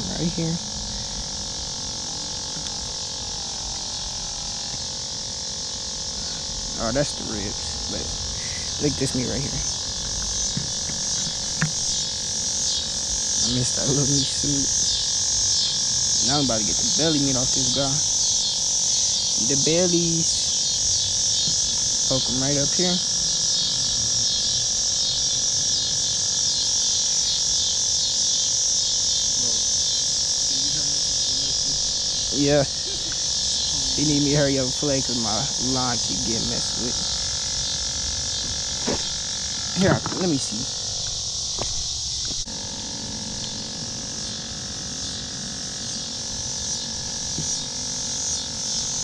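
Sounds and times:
high hiss: 0.0 - 49.0
insects buzzing chorus: 0.0 - 49.0
steady hum: 0.0 - 49.0.

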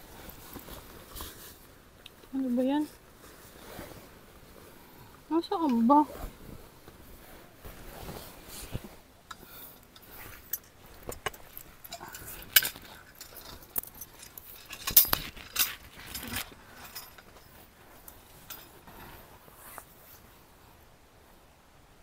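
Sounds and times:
small metal objects clinking: 10.5 - 17.6.

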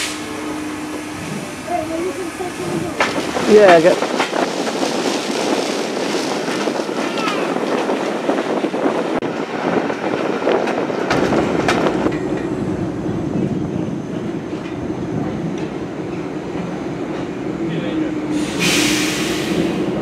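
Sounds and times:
low rumble of train coaches: 0.0 - 20.0
train wheels clicking over rail joints: 0.9 - 9.1, 10.0 - 17.4.

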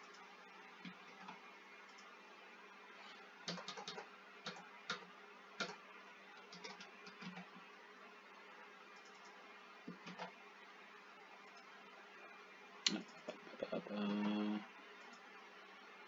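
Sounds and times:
faint room hiss: 0.0 - 16.0
computer keyboard typing: 3.4 - 5.8, 6.4 - 7.5, 9.0 - 10.4.

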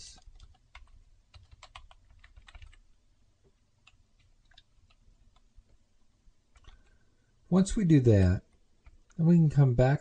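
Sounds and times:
keyboard typing: 0.0 - 2.9, 3.5 - 5.8, 6.5 - 7.0, 8.5 - 9.2.

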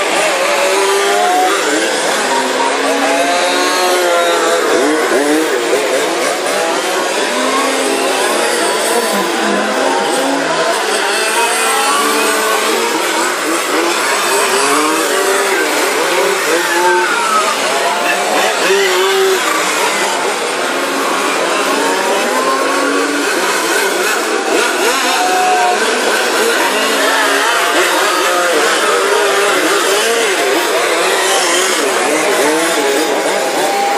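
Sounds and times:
small two-stroke engines buzzing: 0.0 - 33.9.

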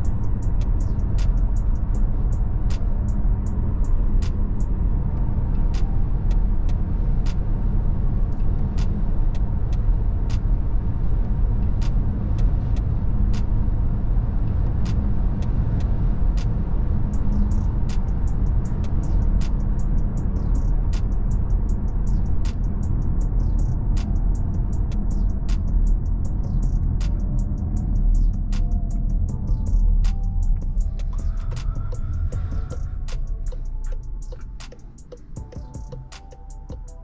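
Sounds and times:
car engine and tyre drone: 0.0 - 37.0.

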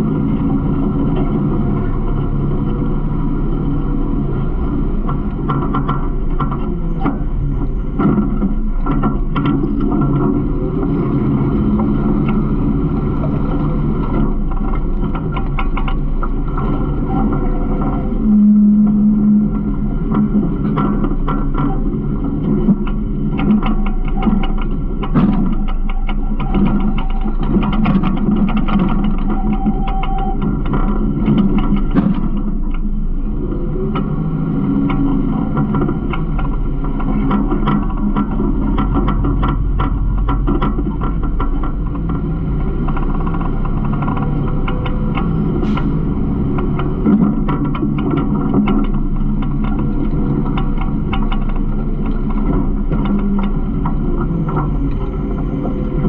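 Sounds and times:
droning tone: 0.0 - 56.0
garbage truck engine running: 0.0 - 56.0
clicks and rattles: 0.1 - 56.0
short clanks and rattles: 34.8 - 56.0.

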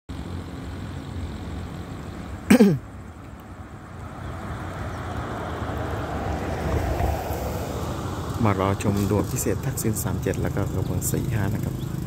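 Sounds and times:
road traffic rumble: 0.1 - 12.0
person coughing: 2.5 - 2.8.

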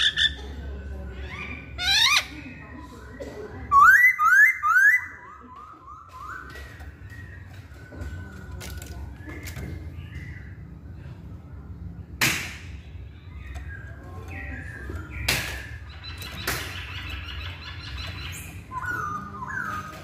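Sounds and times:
bird whistling calls: 3.7 - 10.4, 13.4 - 20.0.

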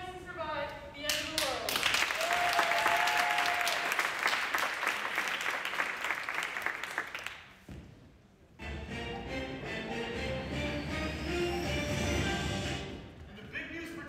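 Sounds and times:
audience clapping: 1.1 - 7.6.

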